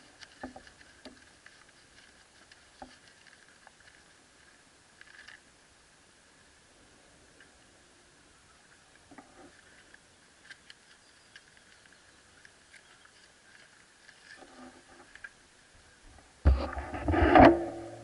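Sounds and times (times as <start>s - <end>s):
faint small clicks and ticks: 0.0s - 5.5s, 8.9s - 15.4s.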